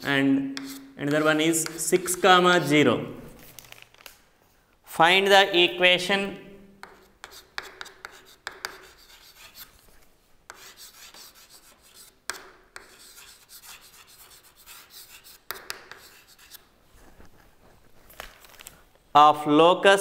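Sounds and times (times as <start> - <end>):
chalk tapping on board: 0.0 - 2.2, 6.8 - 9.7, 10.5 - 16.6
chalk scratching on chalkboard: 0.0 - 2.5, 6.8 - 9.8, 10.5 - 16.7.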